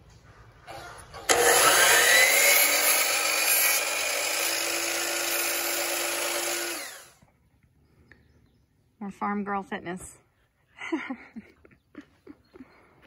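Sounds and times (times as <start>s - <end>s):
miter saw cutting wood: 0.7s - 7.2s.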